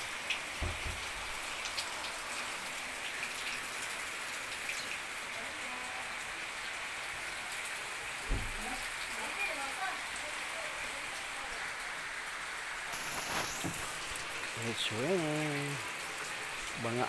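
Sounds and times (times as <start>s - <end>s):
rain on leaves and ground: 0.0s - 17.0s
raindrops ticking: 0.1s - 5.1s, 7.5s - 11.2s, 12.9s - 17.0s.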